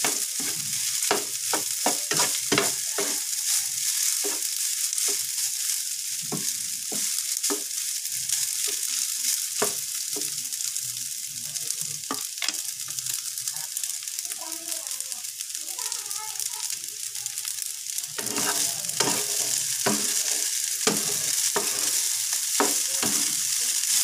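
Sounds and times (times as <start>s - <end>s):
spatula scraping a pan: 0.0s - 10.1s, 18.0s - 24.0s
rice sizzling in a pan: 0.0s - 24.0s.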